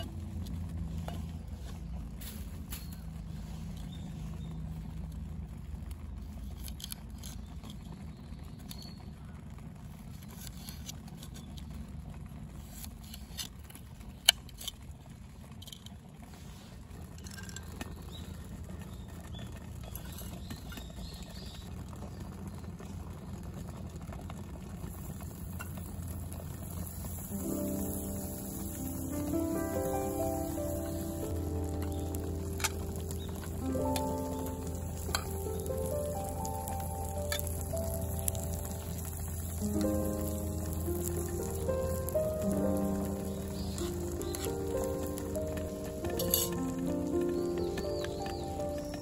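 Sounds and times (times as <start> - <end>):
steady low rumble: 0.0 - 10.2, 16.0 - 49.0
butter sizzling in pan: 24.6 - 49.0.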